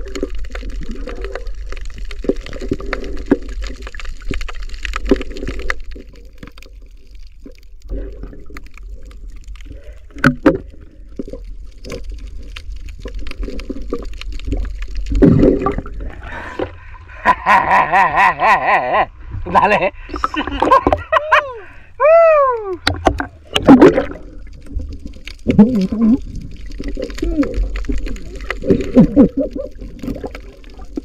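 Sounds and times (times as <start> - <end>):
underwater sloshing and gurgling: 0.0 - 22.0, 22.8 - 31.0
rush of water: 19.4 - 31.0.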